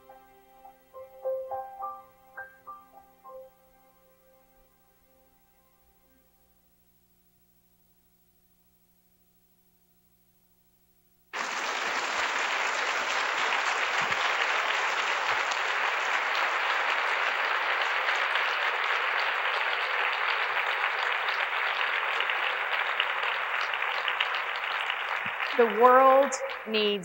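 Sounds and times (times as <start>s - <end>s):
faint hum: 0.0s - 27.0s
audience applauding: 11.3s - 27.0s.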